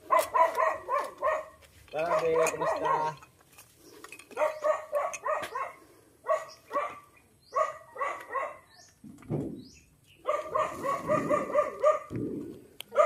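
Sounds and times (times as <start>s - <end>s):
dog barking: 0.0s - 3.2s, 4.4s - 8.7s, 10.2s - 12.1s.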